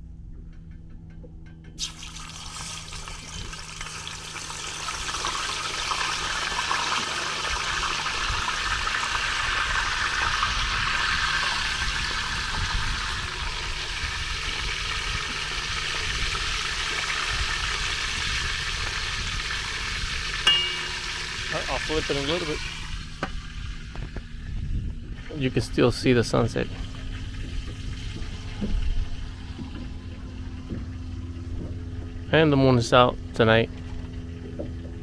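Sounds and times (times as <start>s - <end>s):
fish sizzling in hot oil: 1.8s - 23.9s.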